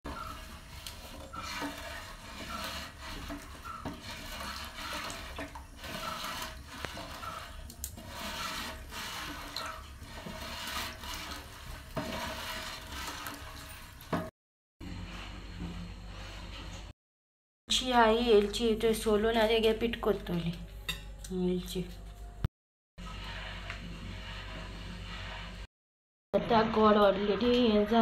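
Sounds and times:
paddle scraping and sloshing in pot: 0.0 - 17.0, 23.0 - 25.7.

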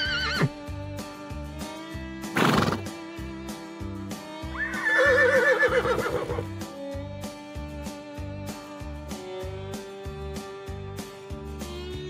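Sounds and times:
horse neighing: 0.0 - 0.5, 2.4 - 2.9, 4.6 - 6.4
background music with steady beat: 0.0 - 12.0
horse blowing: 2.3 - 2.9, 4.6 - 6.5.

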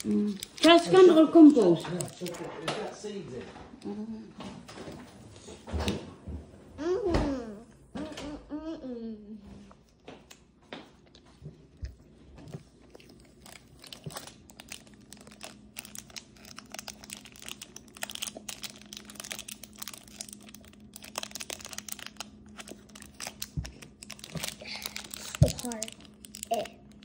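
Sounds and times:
plastic wrapper crinkling: 0.0 - 3.2, 12.9 - 27.0
faint steady hum: 0.0 - 27.0.

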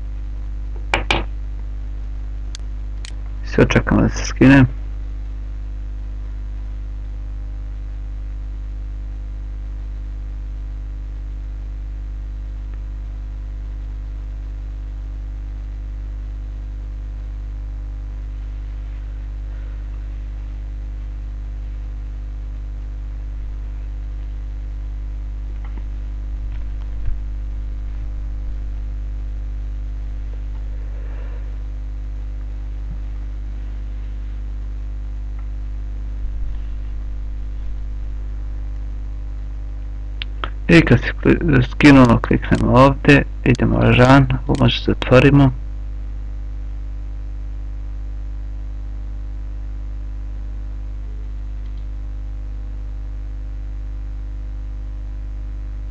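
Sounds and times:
electrical mains hum: 0.0 - 55.9
faint clicks: 51.6 - 51.9.

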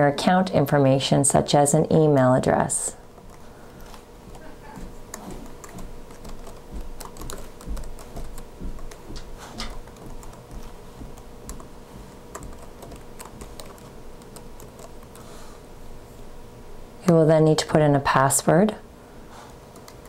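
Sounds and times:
laptop keyboard typing: 3.2 - 15.3, 19.7 - 20.0.

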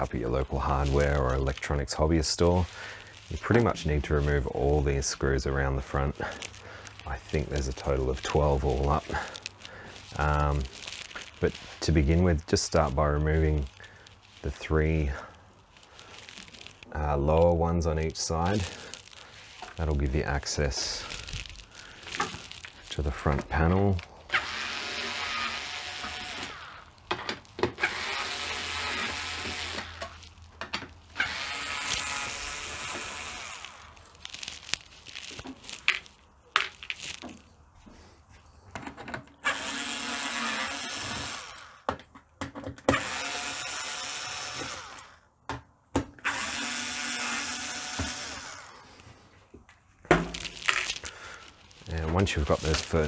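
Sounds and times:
cordless screwdriver whirring: 24.3 - 27.0, 27.7 - 30.2, 31.1 - 34.0, 39.4 - 41.9, 42.9 - 45.2, 46.2 - 48.8.

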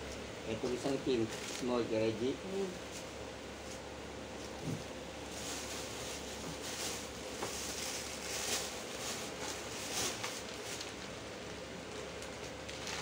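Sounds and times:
plastic bags rustling and crinkling: 0.6 - 1.9, 4.4 - 13.0.

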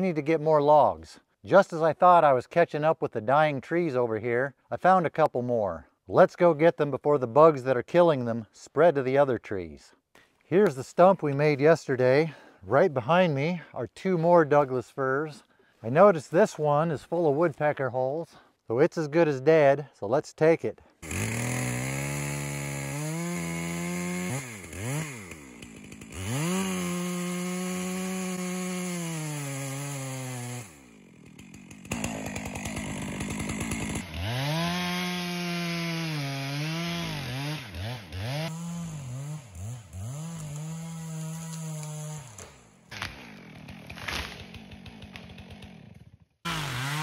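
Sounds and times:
chainsaw revving while cutting: 21.0 - 47.0.

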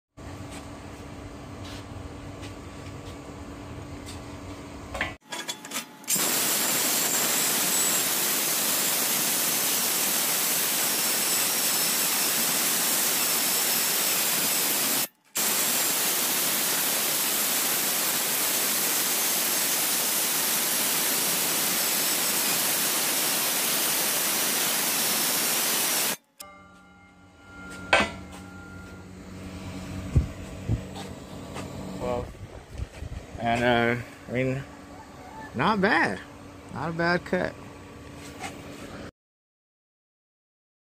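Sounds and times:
circular saw cutting steel: 5.5 - 29.5.

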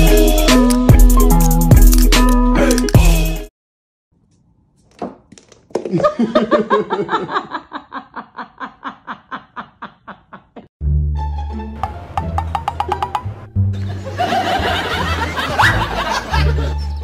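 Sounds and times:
person laughing rhythmically: 2.4 - 3.2, 5.8 - 10.7, 13.8 - 17.0.

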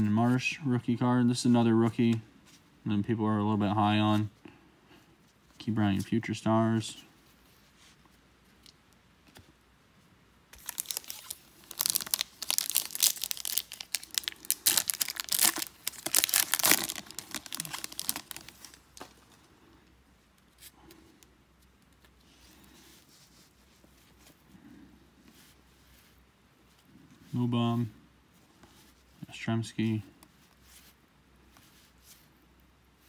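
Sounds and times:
wrapper tearing and crinkling: 10.6 - 19.2.

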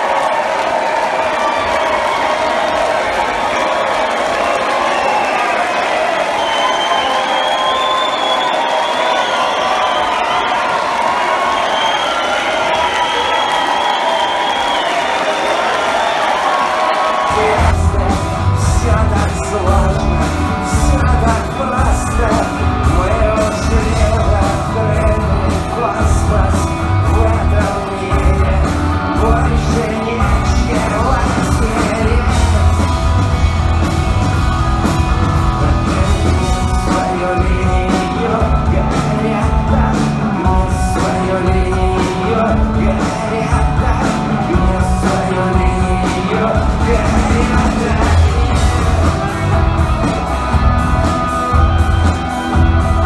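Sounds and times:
rock band playing live: 16.7 - 53.0
person singing: 17.1 - 53.0
heavy kick and bass pulse: 17.3 - 20.2.

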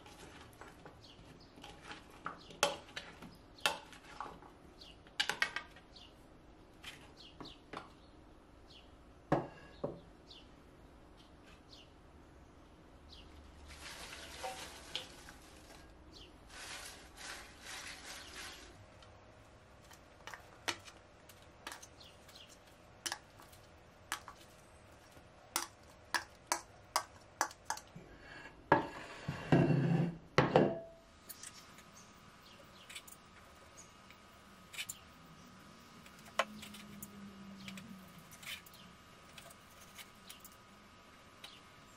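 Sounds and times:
salad leaves rustling: 13.4 - 25.2.

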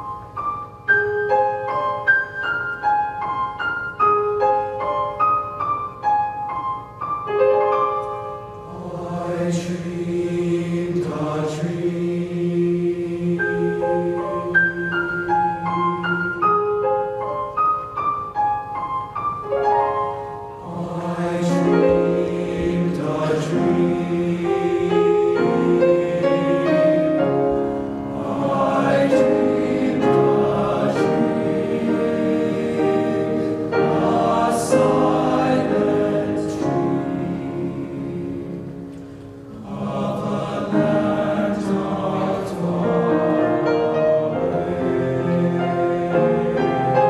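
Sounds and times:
piano accompaniment: 0.0 - 47.0
men's choir singing: 8.7 - 16.8, 20.6 - 38.9, 39.5 - 47.0.

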